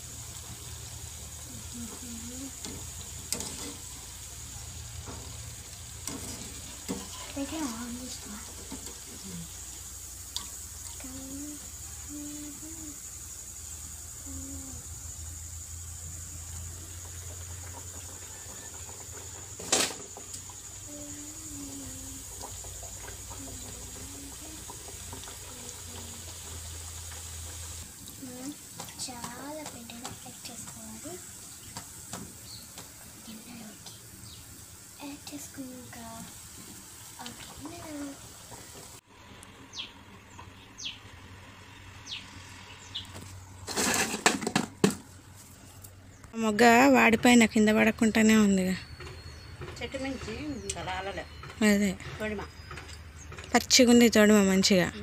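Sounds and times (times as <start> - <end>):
faint steady hum: 0.0 - 31.8
dough sizzling in hot oil: 0.0 - 48.2
bird chirps: 48.0 - 53.5.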